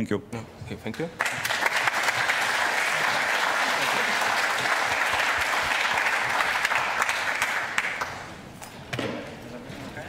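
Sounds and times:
audience applauding: 1.1 - 8.4.

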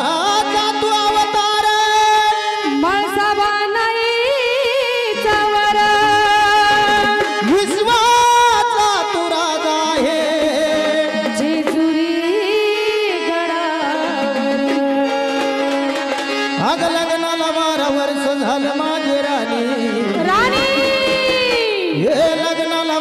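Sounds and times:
woman singing: 0.1 - 8.9, 10.8 - 16.4, 20.1 - 22.2
held accompanying notes: 13.5 - 23.0.

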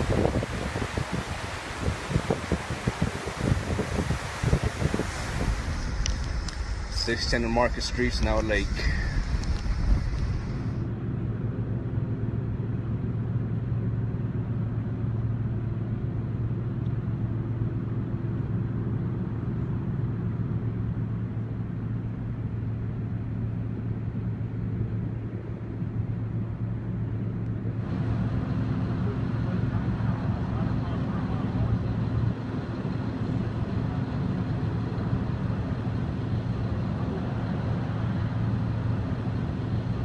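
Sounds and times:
bright hiss: 0.0 - 10.8
low engine hum: 0.0 - 40.0.

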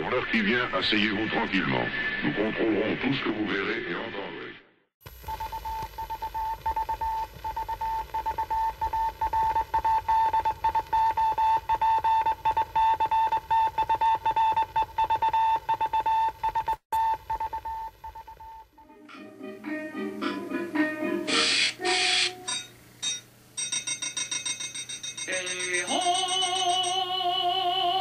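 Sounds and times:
film soundtrack hiss: 5.1 - 11.7, 17.8 - 23.6
morse code beeping: 21.4 - 27.0.

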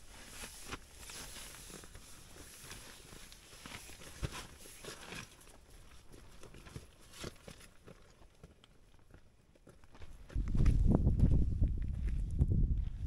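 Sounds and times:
tent fabric rustling: 0.0 - 6.3
soft footsteps: 0.1 - 13.0.

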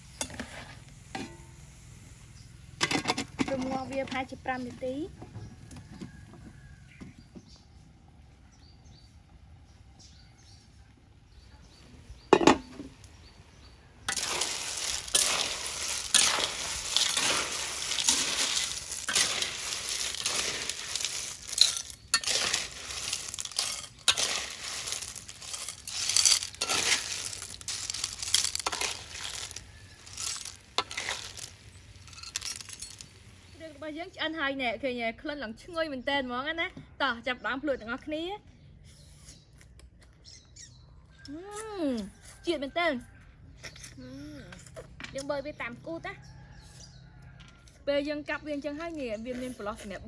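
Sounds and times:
sizzling: 0.0 - 5.8, 10.9 - 34.6
shells clattering against metal wok: 14.1 - 33.2.

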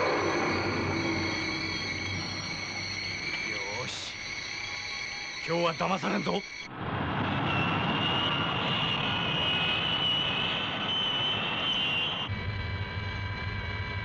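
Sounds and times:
cockpit hum: 0.0 - 5.1
steady high tones: 0.0 - 6.7
jet engine rush and whine: 0.0 - 14.0.

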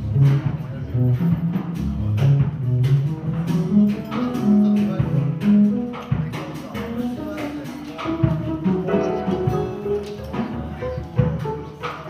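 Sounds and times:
low bass notes: 0.0 - 6.4, 8.4 - 11.5
drum strokes: 0.0 - 12.0
jazz soul band playing: 0.0 - 12.0.

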